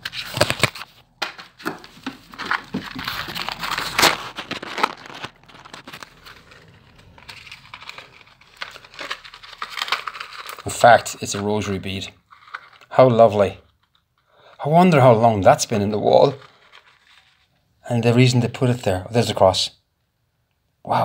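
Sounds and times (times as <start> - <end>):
handling knocks and scrapes: 0.0 - 10.6
pouch crinkling and crackling: 1.8 - 11.4, 16.0 - 17.5.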